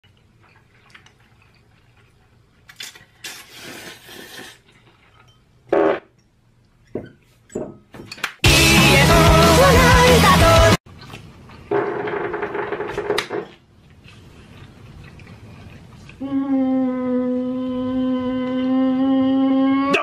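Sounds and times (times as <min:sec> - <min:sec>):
noodles being slurped: 0:00.2 - 0:05.2
loud music: 0:08.4 - 0:10.8.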